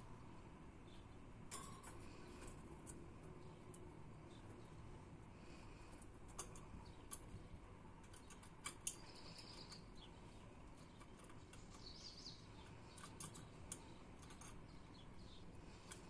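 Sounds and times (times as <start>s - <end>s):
bird claws clicking on cage bars: 1.5s - 3.1s, 5.9s - 7.4s, 8.0s - 9.9s, 10.8s - 14.8s.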